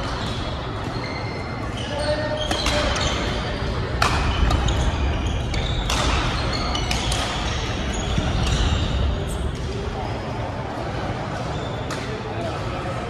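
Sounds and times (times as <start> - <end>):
racquets hitting shuttlecock: 2.4 - 8.7.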